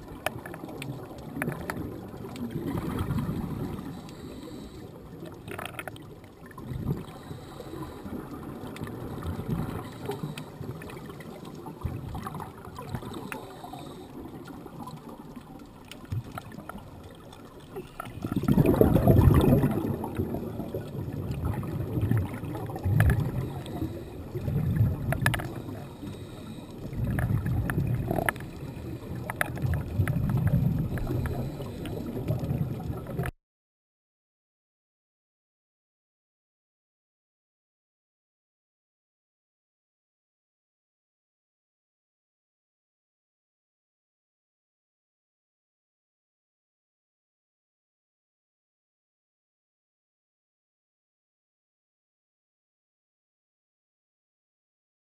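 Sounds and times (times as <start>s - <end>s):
underwater regulator bubbles: 0.0s - 33.3s.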